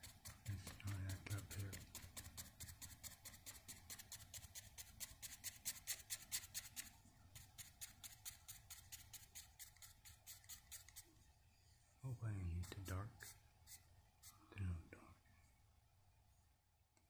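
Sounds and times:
paintbrush scrubbing on canvas: 0:00.0 - 0:11.2, 0:12.5 - 0:14.5.

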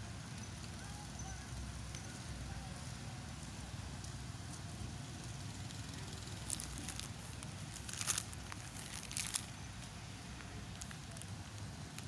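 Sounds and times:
crackling rustles: 0:03.2 - 0:12.0.

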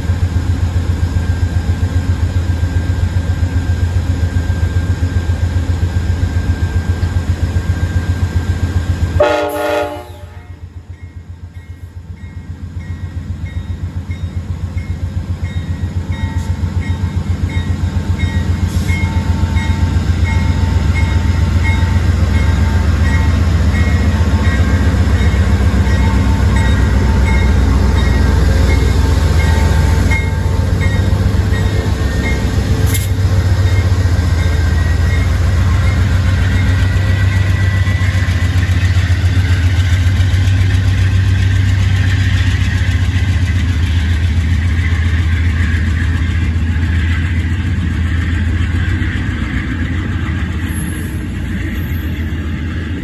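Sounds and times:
diesel locomotive rumbling: 0:00.0 - 0:53.0
train horn blast: 0:09.2 - 0:10.7.

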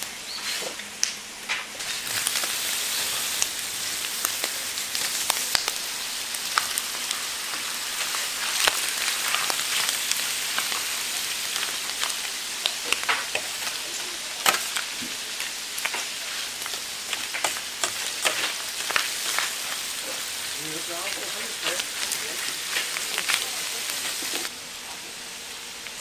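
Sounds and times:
meat sizzling on a griddle: 0:00.0 - 0:26.0
sharp pops and clicks: 0:16.6 - 0:19.5.

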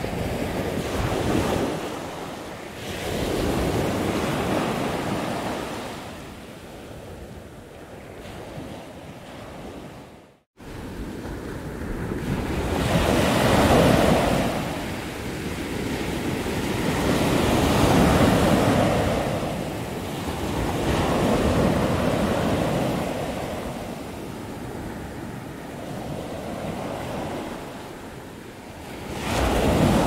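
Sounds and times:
ocean surf breaking on sand: 0:00.0 - 0:07.1, 0:07.8 - 0:30.0.

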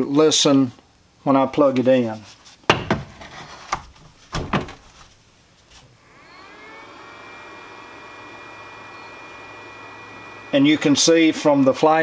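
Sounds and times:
charger fan whirring: 0:06.0 - 0:12.0.

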